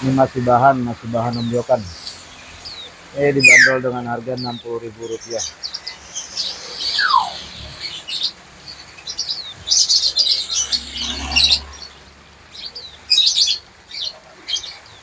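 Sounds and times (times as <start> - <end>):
birds twittering: 0.8 - 15.0
falling whistle: 3.4 - 3.8.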